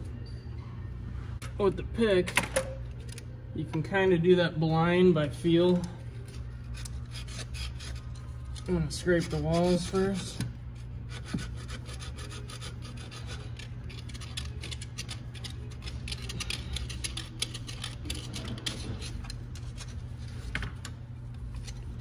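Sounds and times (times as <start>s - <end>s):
steel pick scraping metal: 6.2s - 10.5s, 11.1s - 20.0s.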